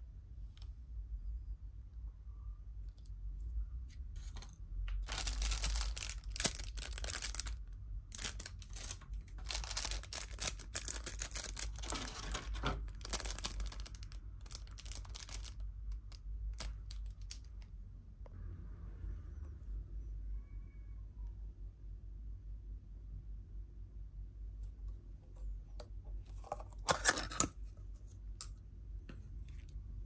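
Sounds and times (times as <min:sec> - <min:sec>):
plastic packaging crinkling: 0:05.0 - 0:17.7.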